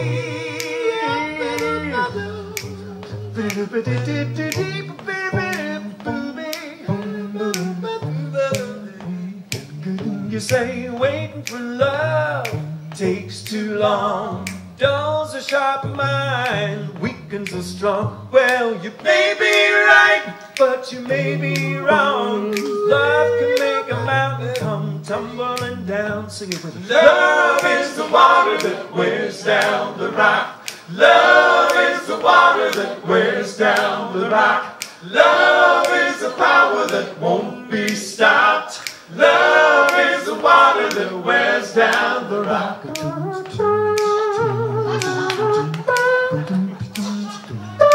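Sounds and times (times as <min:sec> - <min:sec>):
low bass vocal line: 0:00.0 - 0:18.4, 0:21.0 - 0:27.2, 0:42.3 - 0:47.9
finger snaps: 0:00.0 - 0:37.2, 0:37.8 - 0:47.9
male trio singing a cappella: 0:00.0 - 0:47.9.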